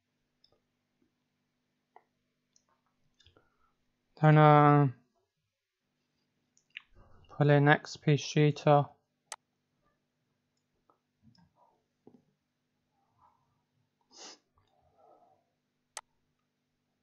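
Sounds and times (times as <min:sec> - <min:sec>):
faint soft noises: 0:09.4 - 0:16.6.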